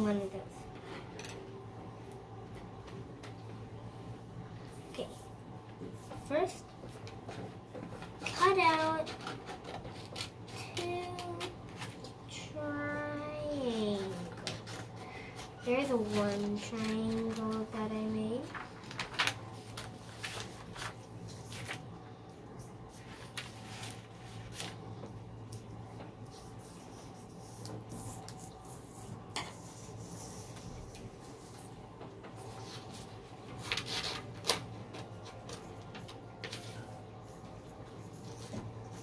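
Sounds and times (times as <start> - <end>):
faint steady hum: 0.0 - 39.0
scissors snipping paper: 8.6 - 12.0, 33.6 - 36.6
paper rustling: 13.8 - 21.9, 22.9 - 25.1, 32.4 - 37.0.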